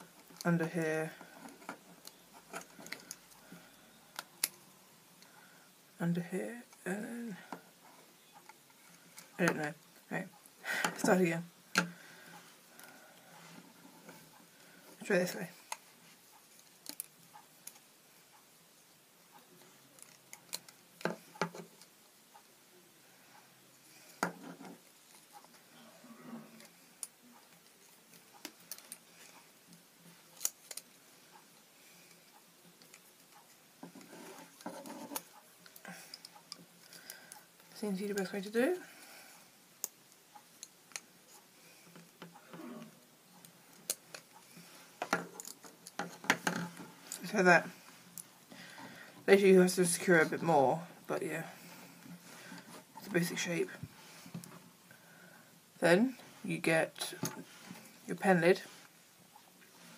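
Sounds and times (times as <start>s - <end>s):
wooden pencils clicking together: 30.4s - 30.9s.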